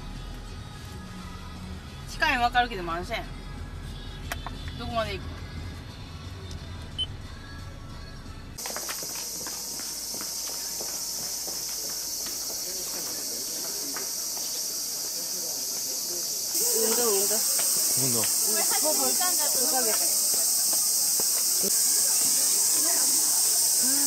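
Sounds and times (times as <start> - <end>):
cicadas chorus: 8.6 - 24.0
people's voices: 8.8 - 24.0.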